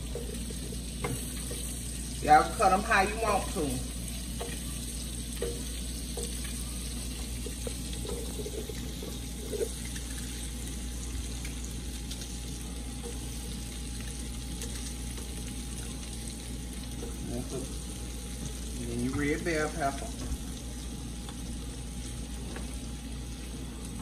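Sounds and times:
onions sizzling in a pan: 0:00.0 - 0:24.0.

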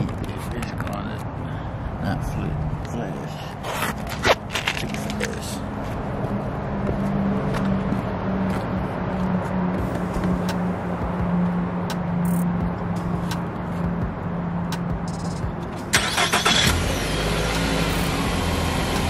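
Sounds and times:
car engine idling: 0:15.9 - 0:19.0.

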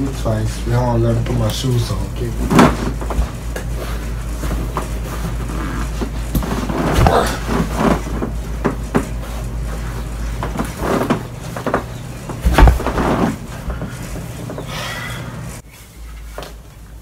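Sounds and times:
steady low hum: 0:00.0 - 0:17.0
knocks of things being handled: 0:02.5 - 0:09.5, 0:10.3 - 0:14.6.

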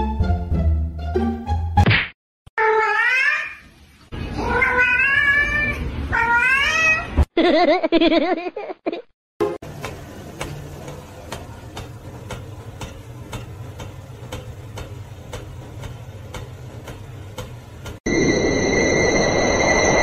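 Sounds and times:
low hum: 0:18.1 - 0:20.0.

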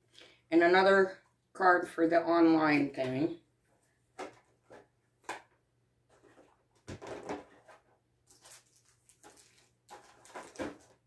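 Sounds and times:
cards and wrapper crinkling: 0:06.3 - 0:11.0.

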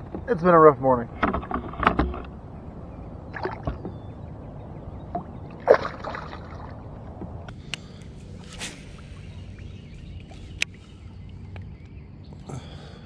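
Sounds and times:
water sloshing: 0:00.0 - 0:07.5
fish splashing in water: 0:05.1 - 0:07.1.

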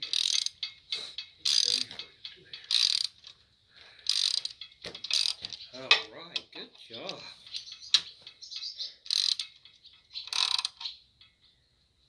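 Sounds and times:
socket ratchet clicking: 0:00.0 - 0:01.9, 0:02.7 - 0:03.4, 0:04.1 - 0:05.4, 0:07.6 - 0:11.0.

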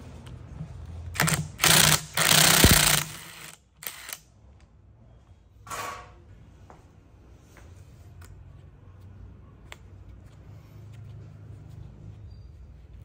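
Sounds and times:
impact wrench hammering: 0:01.2 - 0:04.2.

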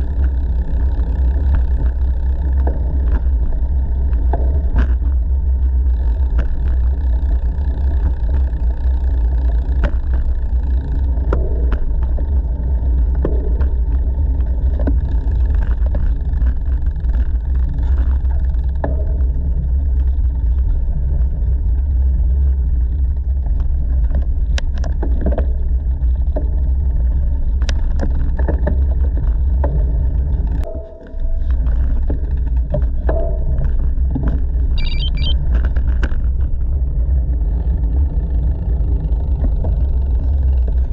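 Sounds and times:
bike clicks and rattles: 0:00.0 - 0:30.7.

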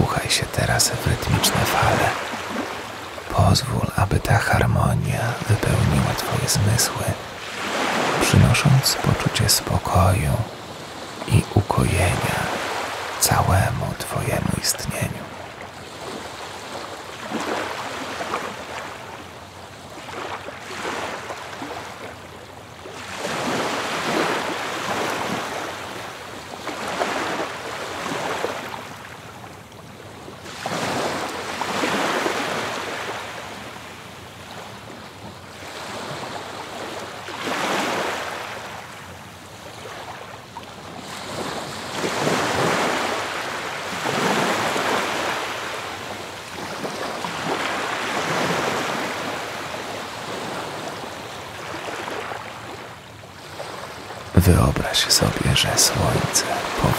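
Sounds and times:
waves breaking on shore: 0:01.0 - 0:03.3, 0:07.0 - 0:09.4, 0:10.5 - 0:13.2, 0:15.2 - 0:54.3.

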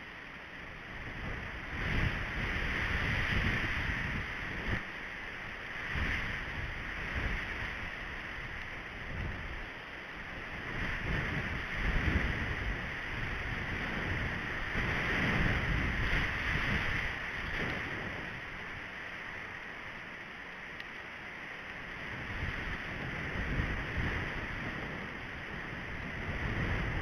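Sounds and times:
steady hiss: 0:00.0 - 0:27.0
wind buffeting microphone: 0:00.9 - 0:04.9, 0:05.7 - 0:09.6, 0:10.3 - 0:18.6, 0:22.0 - 0:27.0.

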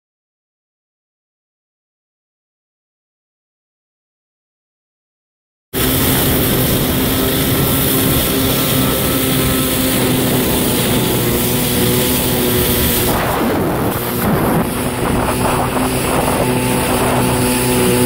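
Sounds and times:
jet ski engine running: 0:05.8 - 0:18.0.

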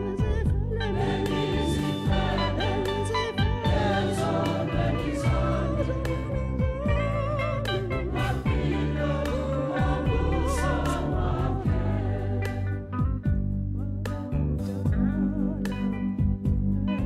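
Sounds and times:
low sustained notes: 0:00.0 - 0:16.9
choir singing a hymn: 0:00.8 - 0:13.2
steady beat of sharp strikes: 0:01.2 - 0:15.1.

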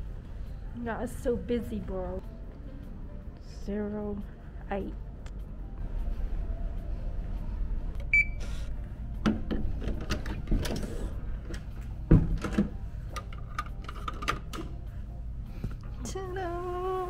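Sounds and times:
keycard door lock beep: 0:08.1 - 0:08.4
door thump: 0:12.1 - 0:12.7.

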